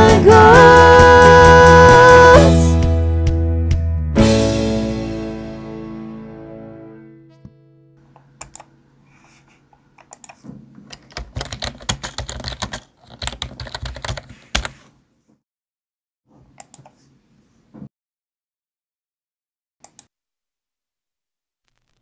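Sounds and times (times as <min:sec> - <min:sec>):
band song final chord: 0:00.0 - 0:07.9
typing on computer keyboard: 0:10.0 - 0:14.8.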